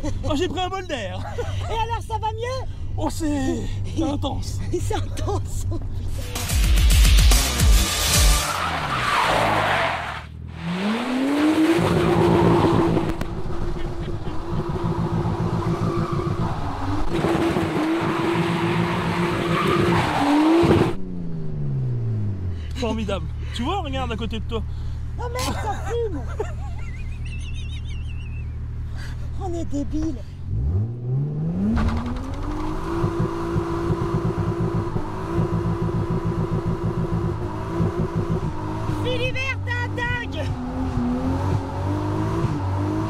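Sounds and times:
car engine at steady revs: 10.3 - 26.2, 26.9 - 43.0.

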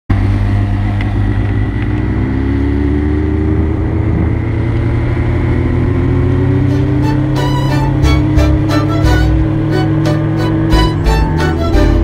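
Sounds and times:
motorcycle engine accelerating: 0.1 - 12.0.

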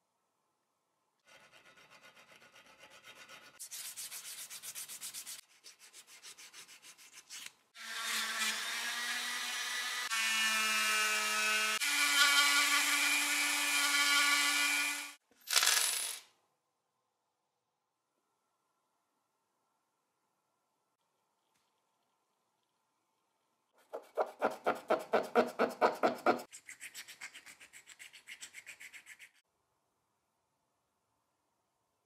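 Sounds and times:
brush scrubbing brass: 1.3 - 7.5
rotary tool polishing metal: 23.9 - 29.4.

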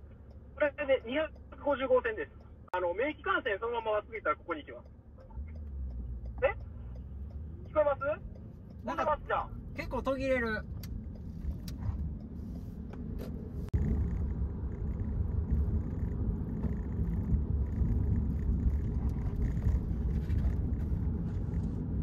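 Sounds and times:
road noise: 0.0 - 22.0
wind rumble: 10.6 - 22.0.

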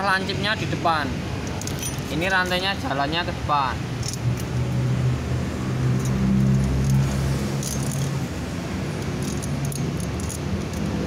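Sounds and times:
chain links clinking and rattling: 1.4 - 2.6, 4.0 - 4.6, 5.8 - 11.0.

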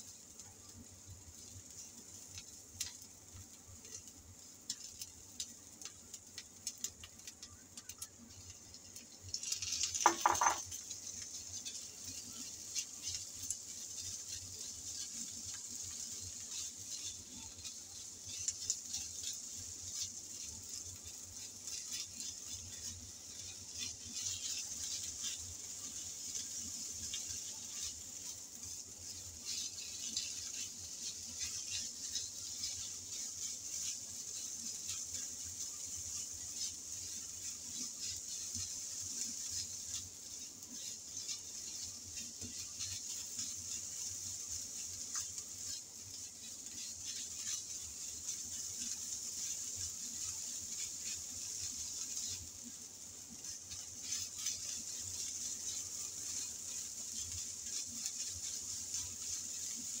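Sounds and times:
onion sizzling in a frying pan: 0.0 - 60.0
spatula scraping and tapping pan: 1.3 - 60.0
meat dropped into pan: 9.9 - 10.7.

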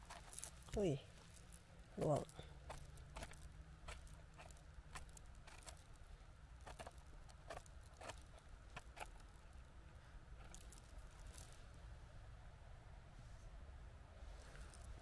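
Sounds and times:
twigs and moss crackling: 0.0 - 11.8
low steady background: 0.0 - 15.0.

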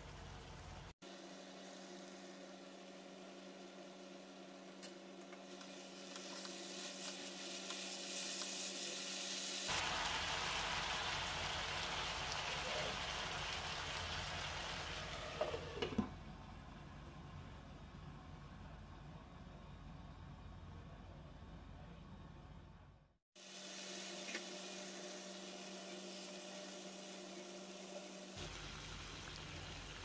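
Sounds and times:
curry sizzling in a frying pan: 0.0 - 15.8, 23.4 - 30.0.

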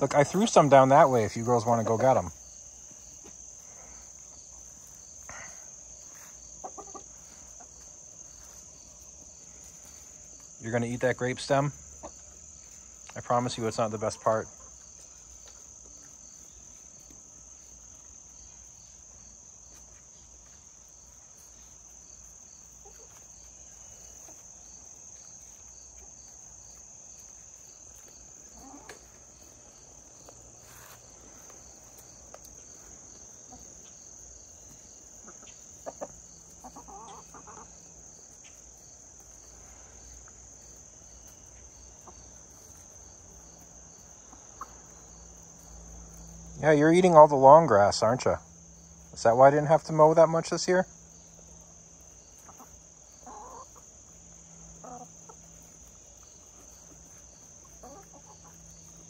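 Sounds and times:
crickets chirping: 0.0 - 59.0
hens clucking: 4.0 - 48.4, 49.1 - 59.0.

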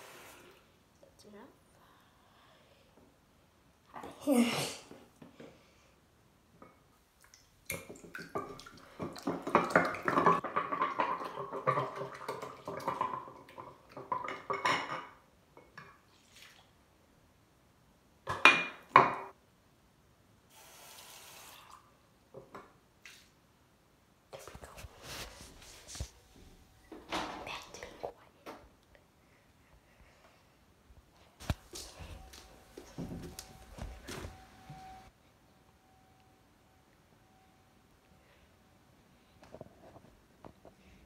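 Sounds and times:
dish clattering: 9.3 - 12.1
short hiss of water: 20.5 - 21.8.

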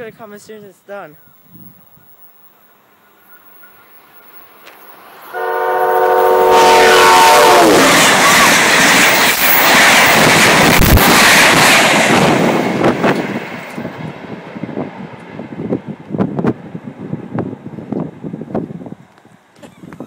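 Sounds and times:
train coaches rushing past: 2.1 - 17.0
train horn: 5.3 - 8.6.

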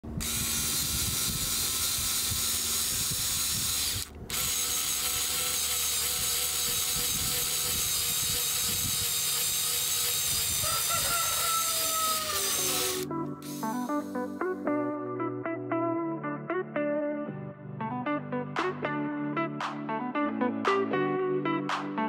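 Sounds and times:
electric screwdriver drilling wood: 0.1 - 14.2.

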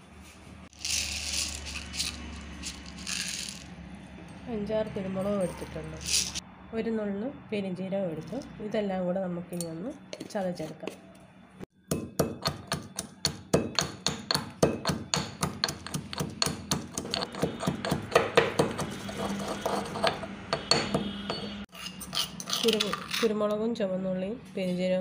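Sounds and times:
pestle pounding in mortar: 11.9 - 20.0.

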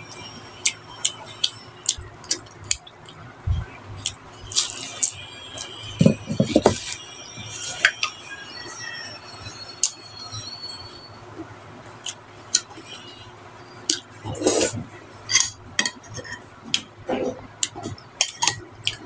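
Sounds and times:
crunchy chewing: 4.0 - 5.8.

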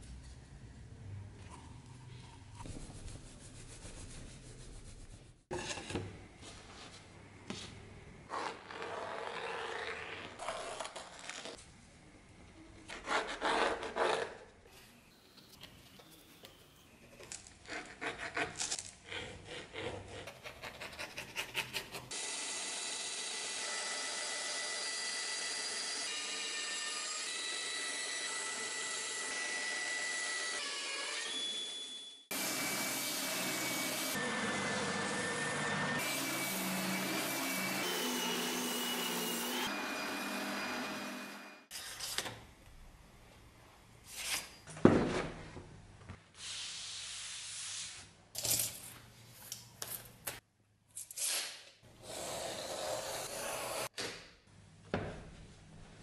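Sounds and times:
band saw cutting wood: 22.1 - 41.8, 52.0 - 53.9.

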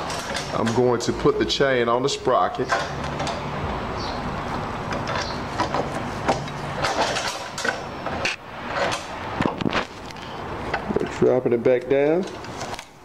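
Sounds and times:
roller chain clinking on metal: 0.0 - 0.9, 6.8 - 7.9.

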